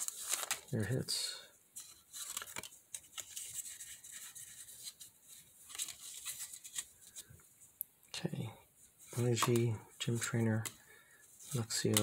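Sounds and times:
foil wrapper crinkling: 0.0s - 0.9s, 1.8s - 5.0s.

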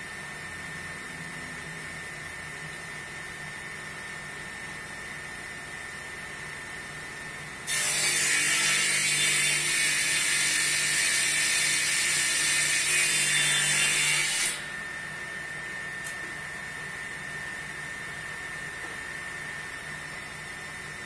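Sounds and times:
table saw cutting wood: 7.6s - 15.0s.

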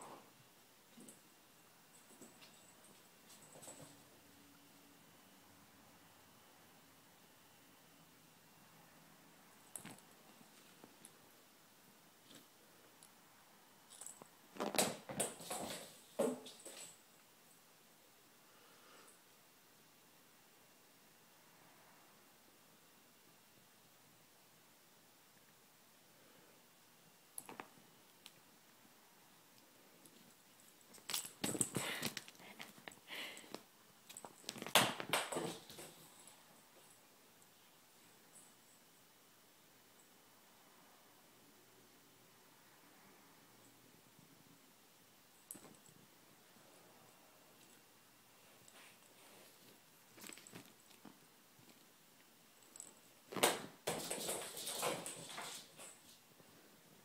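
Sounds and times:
cat scrambling and rustling: 53.3s - 56.1s.

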